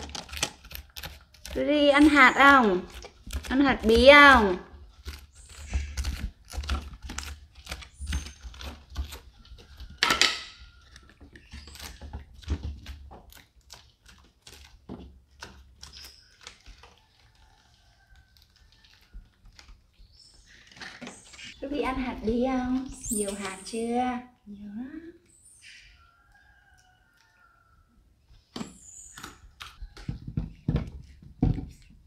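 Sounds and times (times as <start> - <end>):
metal spoon scraping pumpkin: 0.0 - 12.5.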